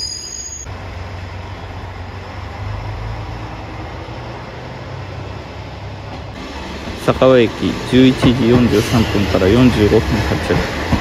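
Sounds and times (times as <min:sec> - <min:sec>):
rail running noise: 0:00.0 - 0:11.0.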